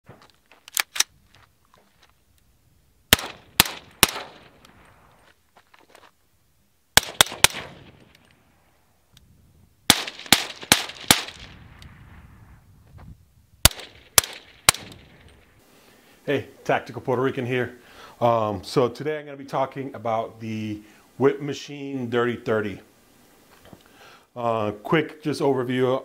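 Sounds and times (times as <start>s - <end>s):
suppressed rifle shots: 3.1s - 4.8s, 7.0s - 8.1s, 9.9s - 11.7s, 13.6s - 15.5s.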